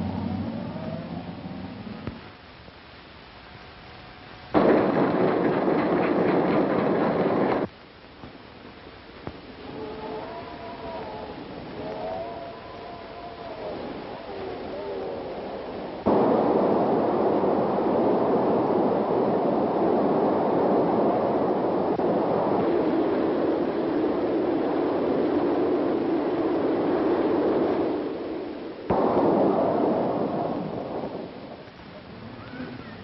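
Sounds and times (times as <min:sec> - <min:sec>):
train rumbling: 0:04.5 - 0:07.7.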